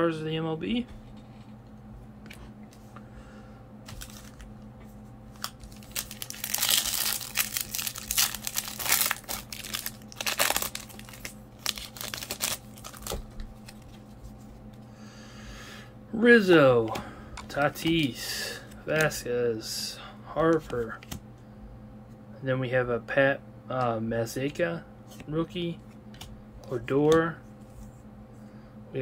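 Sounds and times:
foil wrapper crinkling and tearing: 3.9 - 4.5, 5.3 - 14.1.

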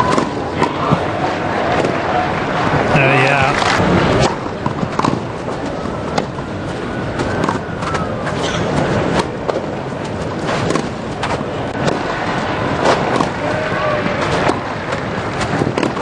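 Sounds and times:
crowd murmur: 0.0 - 16.0
sharp claps: 10.7 - 16.0.

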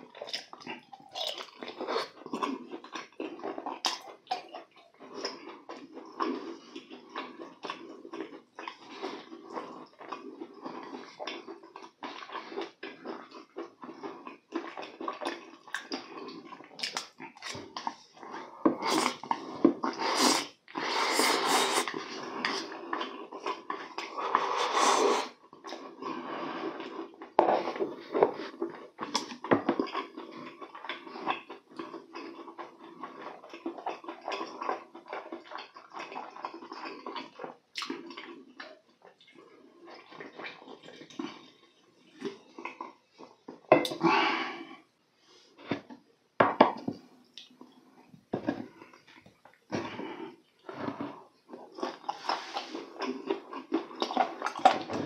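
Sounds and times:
wet chewing: 0.0 - 44.0, 48.6 - 55.0
noodle slurping: 15.8 - 29.3, 49.7 - 55.0.

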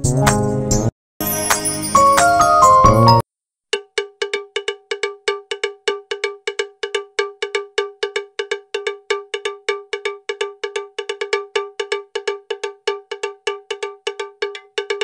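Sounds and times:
cowbell strikes: 3.8 - 15.0.

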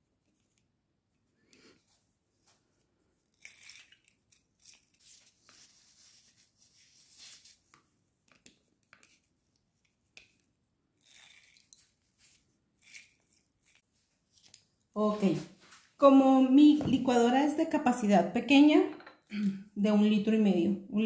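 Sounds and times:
paper rustling: 4.6 - 7.8.

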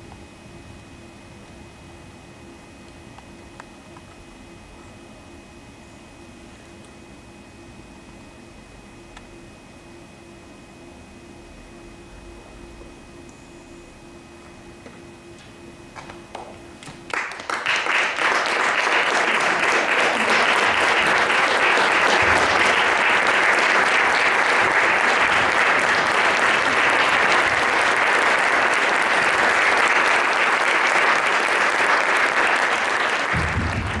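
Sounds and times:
audience applause: 17.1 - 34.0.

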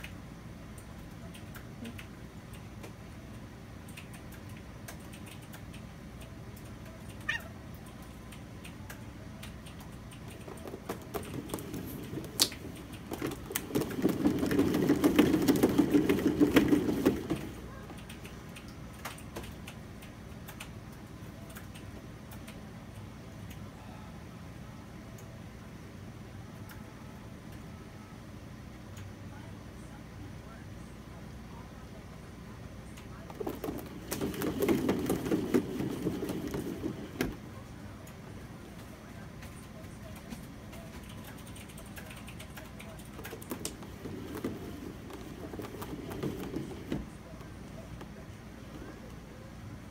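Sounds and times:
cat exercise wheel rolling: 9.0 - 22.5, 33.0 - 49.9.

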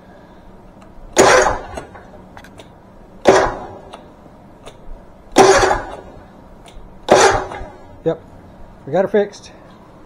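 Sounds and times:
starter motor cranking engine: 1.2 - 2.0, 5.4 - 6.1.

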